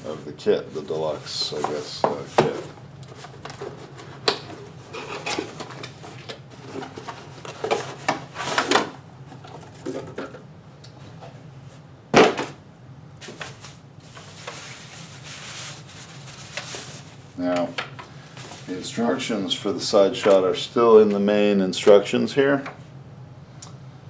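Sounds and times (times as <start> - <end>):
cardboard and wrapping rustling: 0.8 - 10.2, 13.2 - 17.2.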